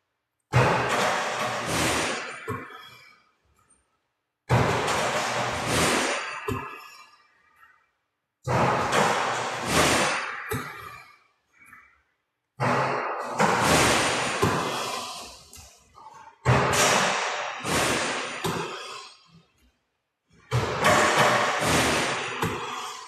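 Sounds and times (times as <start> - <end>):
basketball thumps and rattling: 0.5 - 2.9, 4.5 - 6.9, 8.5 - 11.0, 12.6 - 14.9, 16.4 - 18.9, 20.4 - 22.9.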